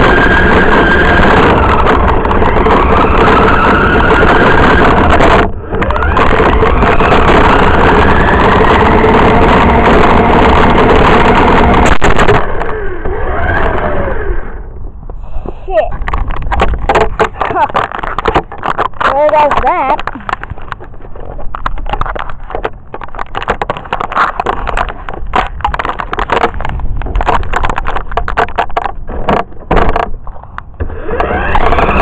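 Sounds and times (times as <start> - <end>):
rc car motor whirring: 0.0 - 14.7, 30.8 - 32.0
wheel and drivetrain rush: 0.0 - 32.0.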